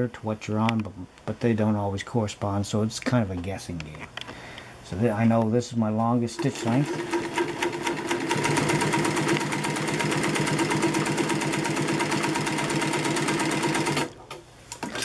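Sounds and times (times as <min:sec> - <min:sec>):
industrial sewing machine sewing: 0:06.4 - 0:14.2.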